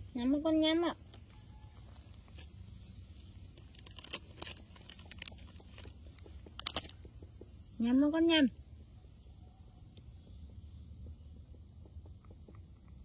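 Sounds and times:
monkey eating food clicks: 3.7s - 7.5s, 11.5s - 13.0s.

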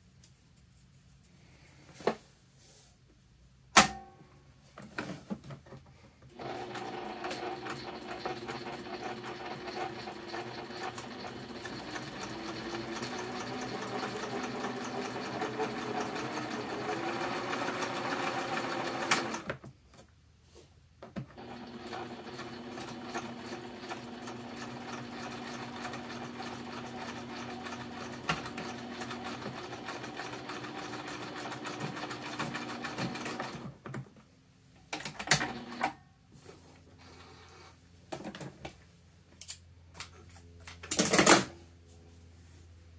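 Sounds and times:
sewing machine stitching: 6.3s - 19.6s, 21.1s - 33.8s, 35.0s - 36.0s.

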